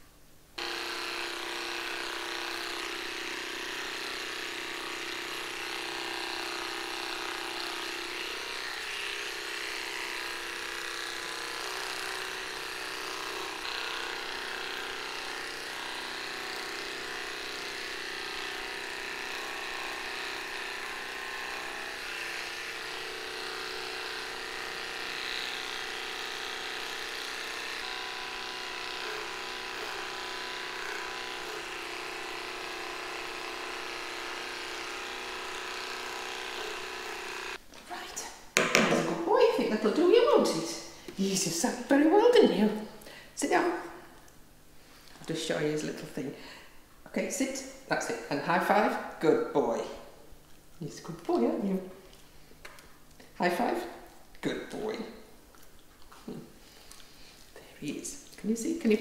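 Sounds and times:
electric clippers buzzing: 0.6 - 37.6, 38.6 - 44.3.

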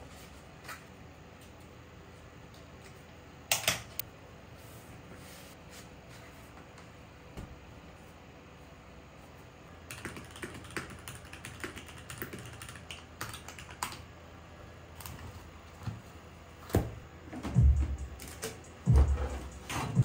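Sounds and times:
mechanical keyboard typing: 3.5 - 4.0, 9.9 - 14.0.

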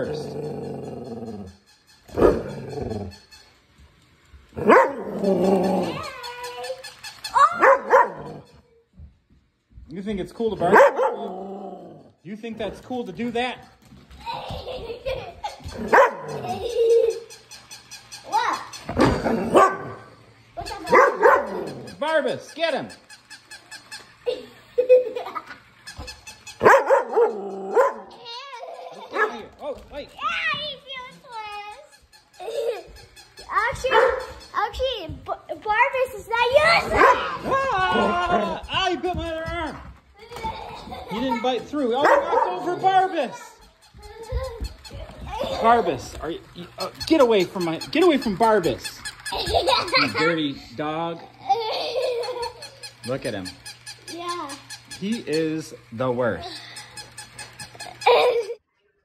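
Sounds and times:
dog barking: 4.6 - 5.1, 7.6 - 8.4, 10.7 - 11.3, 15.9 - 16.3, 19.5 - 20.0, 20.9 - 21.6, 26.6 - 28.2, 29.1 - 29.5, 33.9 - 34.3, 36.9 - 37.4, 42.0 - 42.7
puppy yipping: 33.7 - 34.4, 41.9 - 42.9.

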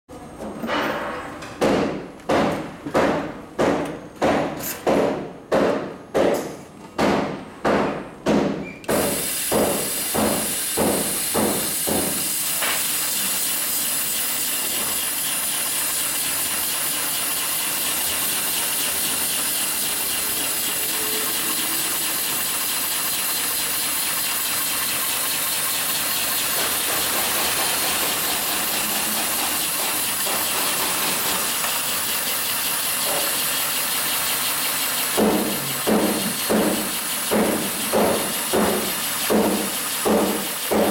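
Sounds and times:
sewing machine stitching: 9.0 - 40.9.

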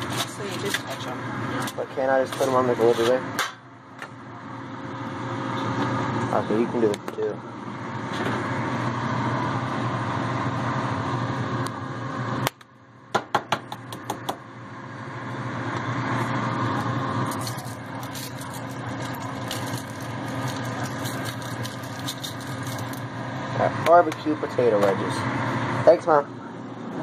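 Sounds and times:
steady mechanical hum: 0.0 - 27.0
seasoning shaker rattling: 17.3 - 23.1.

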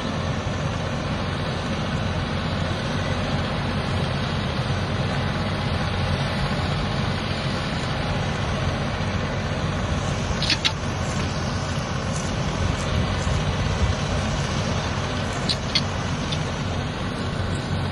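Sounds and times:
tractor diesel engine running: 0.0 - 17.9
sharp clicks: 15.4 - 16.6.

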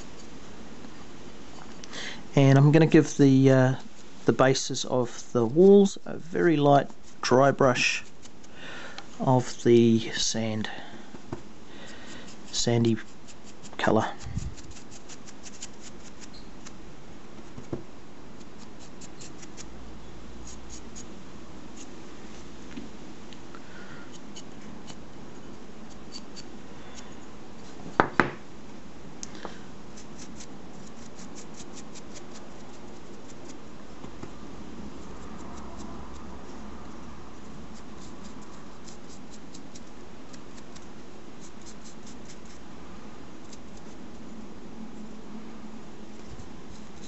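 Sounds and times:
bristles scratching a surface: 6.8 - 8.5, 12.1 - 16.8, 18.4 - 19.7, 20.4 - 21.1, 30.0 - 33.6, 37.7 - 42.6
sharp knocks: 27.9 - 28.4.

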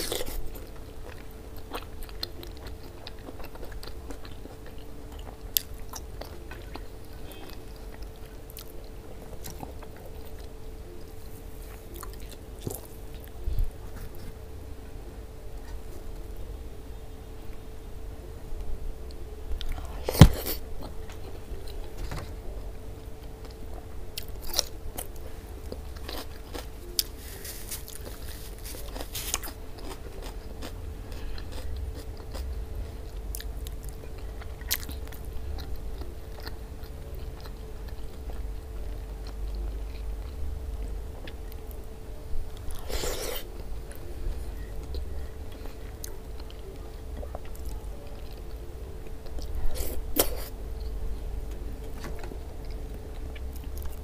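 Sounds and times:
faint steady hum: 0.0 - 54.0
chewing with wet mouth clicks: 33.3 - 41.7.

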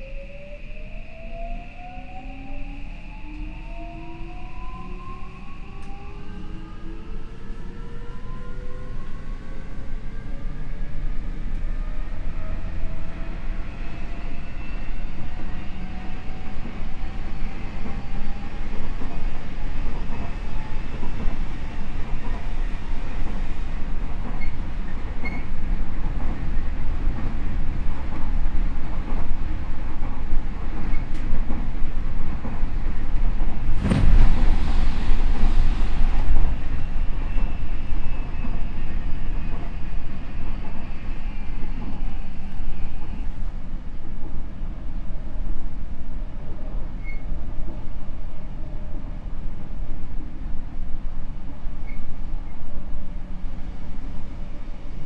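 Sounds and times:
train wheels rumbling on rails: 3.2 - 55.0.

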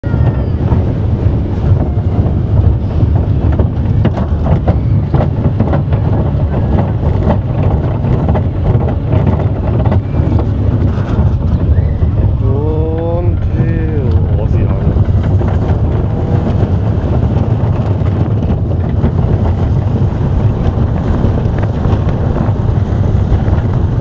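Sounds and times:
roller coaster rumbling on track: 0.0 - 24.0
wind on microphone: 0.0 - 24.0.

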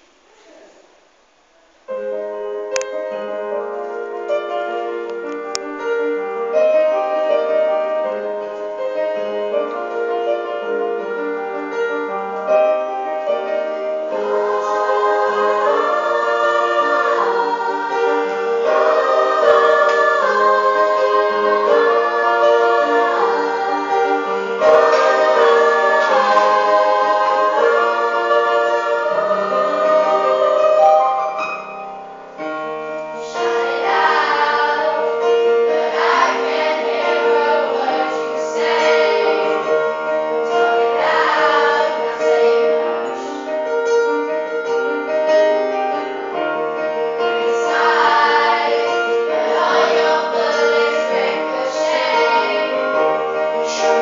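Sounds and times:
piano playing: 1.9 - 54.0
harmony group singing: 13.6 - 31.5, 33.2 - 43.5, 47.2 - 54.0.

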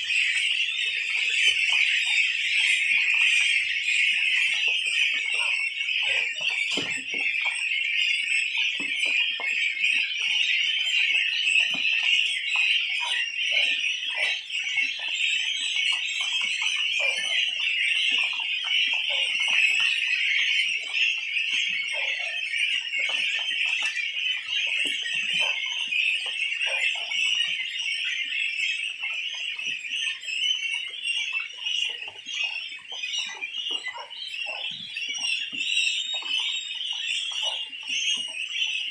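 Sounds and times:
goslings peeping: 0.0 - 38.9.

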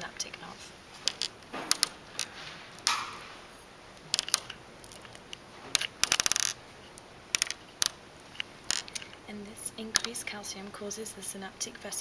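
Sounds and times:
hard balls clicking together: 1.0 - 3.2, 3.9 - 9.2, 9.8 - 10.3.

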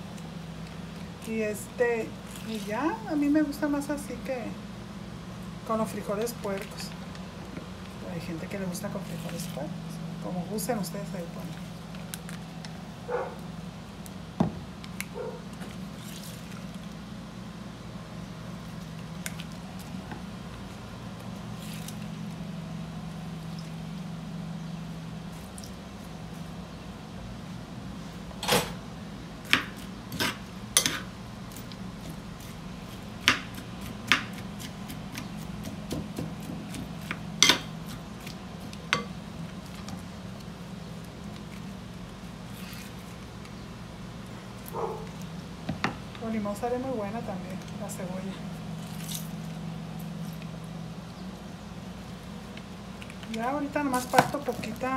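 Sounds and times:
steady low hum: 0.0 - 54.9
soft squishing and dripping: 14.8 - 17.0.

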